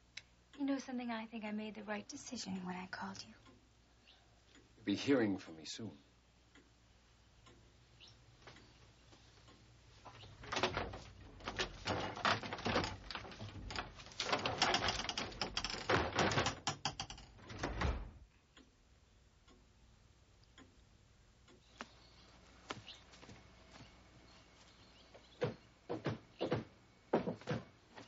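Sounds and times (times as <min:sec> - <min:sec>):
clicks and knocks: 0:10.0 - 0:18.2.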